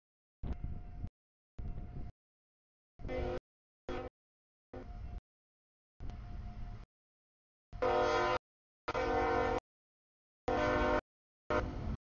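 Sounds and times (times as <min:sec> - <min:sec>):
locomotive air horn: 0:03.0 - 0:04.1, 0:07.7 - 0:09.6, 0:10.5 - 0:12.0
diesel locomotive rumbling: 0:06.0 - 0:06.9, 0:10.5 - 0:12.0.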